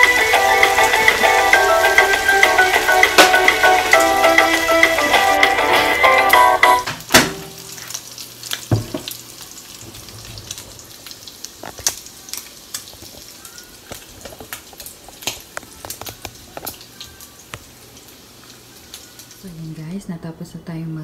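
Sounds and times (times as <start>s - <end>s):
bacon sizzling in a pan: 0.0s - 19.9s
fat popping and crackling: 11.4s - 16.9s.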